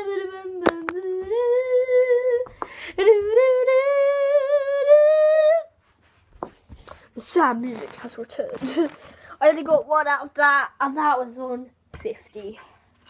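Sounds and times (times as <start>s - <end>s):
girl humming a sad tune: 0.0s - 5.7s.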